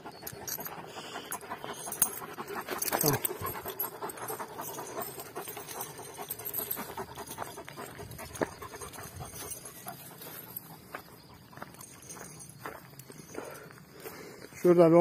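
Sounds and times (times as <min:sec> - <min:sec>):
dogs panting: 0:00.0 - 0:15.0.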